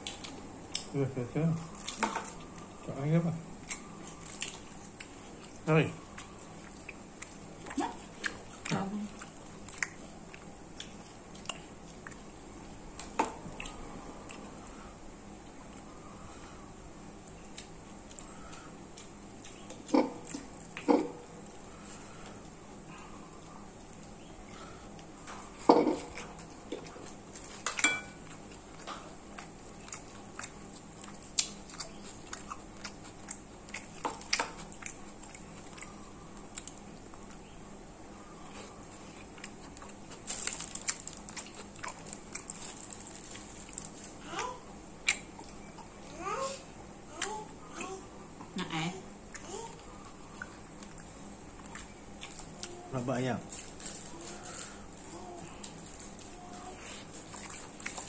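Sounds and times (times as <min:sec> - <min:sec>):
person chewing: 0:00.0 - 0:01.0, 0:03.6 - 0:14.7, 0:17.2 - 0:37.6, 0:38.3 - 0:44.2, 0:44.9 - 0:46.0, 0:49.2 - 0:52.8, 0:53.5 - 0:58.0
cutlery clinking on a plate: 0:27.7 - 0:28.2.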